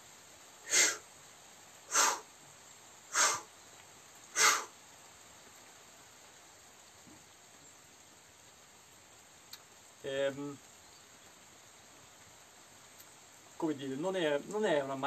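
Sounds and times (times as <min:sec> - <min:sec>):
sharp breaths out through mouth: 0:00.7 - 0:01.0, 0:01.9 - 0:02.3, 0:03.1 - 0:03.5, 0:04.4 - 0:04.7.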